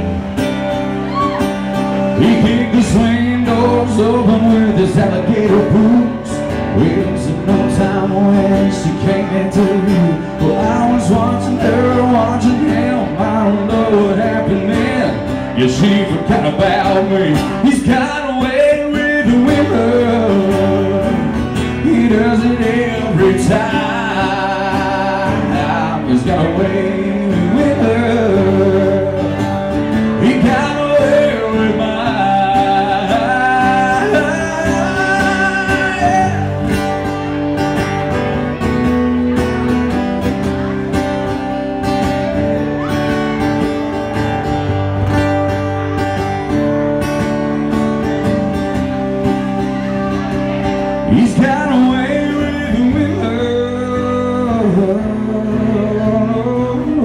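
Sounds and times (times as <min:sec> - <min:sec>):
acoustic guitar: 0:00.0 - 0:57.0
live country band: 0:00.0 - 0:57.0
man singing: 0:01.0 - 0:37.2, 0:48.0 - 0:57.0.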